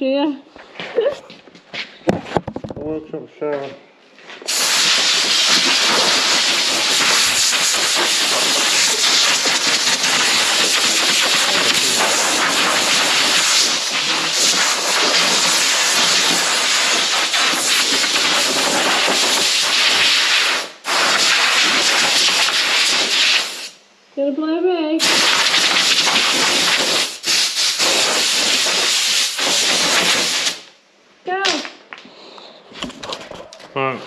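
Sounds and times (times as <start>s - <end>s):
air blow gun hissing: 4.4s - 23.8s, 25.0s - 30.7s.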